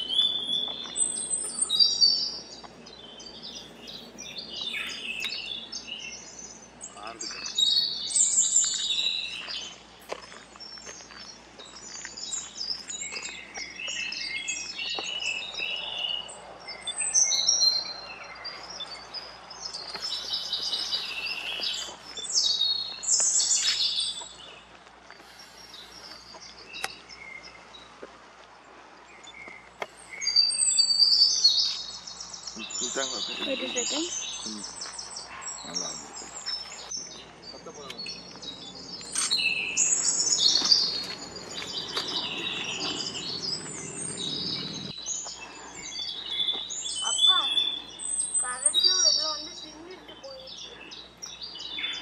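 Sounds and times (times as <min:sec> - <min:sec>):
songbirds singing: 0:00.0 - 0:52.0.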